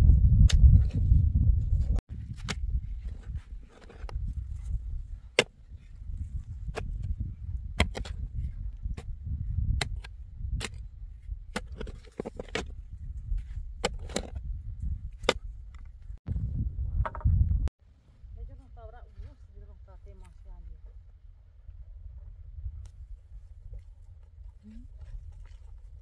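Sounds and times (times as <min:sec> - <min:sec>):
digging tool striking hard ground: 0:05.3 - 0:05.6, 0:06.6 - 0:09.1, 0:09.7 - 0:10.9, 0:13.8 - 0:14.4.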